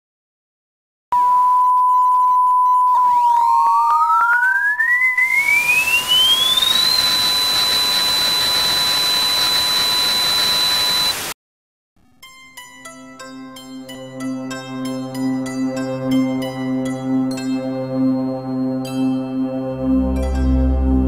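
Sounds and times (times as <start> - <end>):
rising tone: 2.9 - 11.2
steady pure beep: 4.1 - 11.3
static hiss: 5.2 - 11.4.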